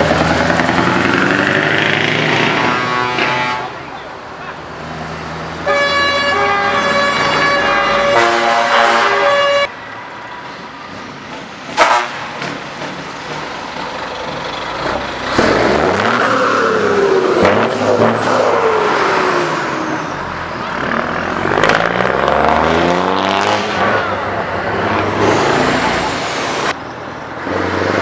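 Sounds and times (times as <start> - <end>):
diesel truck engine revving: 0.0 - 3.7, 13.1 - 26.8
musical air horn: 2.5 - 3.8, 5.6 - 9.7, 11.8 - 12.3.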